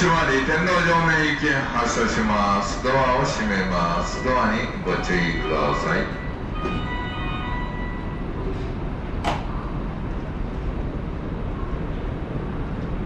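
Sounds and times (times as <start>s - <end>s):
idling train rumble: 0.0s - 13.0s
train door chime: 3.8s - 8.8s.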